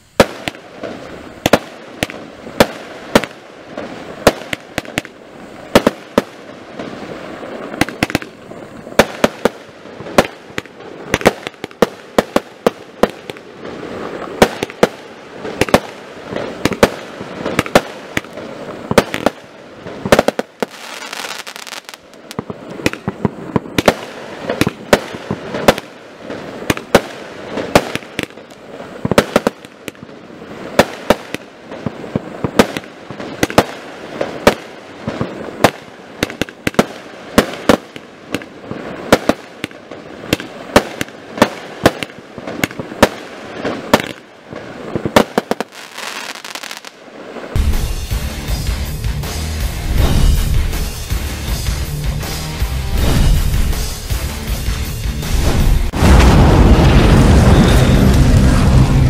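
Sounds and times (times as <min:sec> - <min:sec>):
fireworks launches and bursts: 0:00.0 - 0:59.0
continuous rushing noise: 0:52.8 - 0:59.0.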